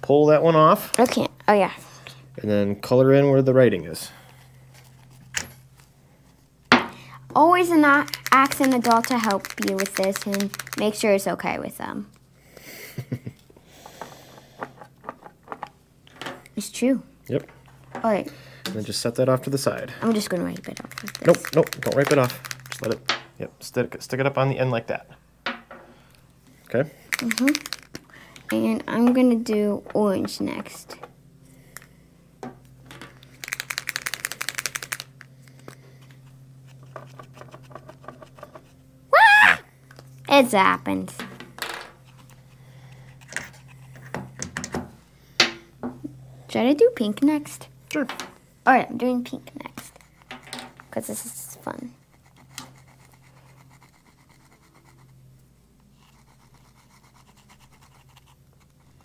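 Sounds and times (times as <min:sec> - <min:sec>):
steady low hum: 0:00.0 - 0:59.0
paint marker ball rattling: 0:07.8 - 0:11.0, 0:20.2 - 0:23.0, 0:27.1 - 0:28.0, 0:33.4 - 0:35.1
marker scratching on metal: 0:52.1 - 0:55.2, 0:55.9 - 0:59.0.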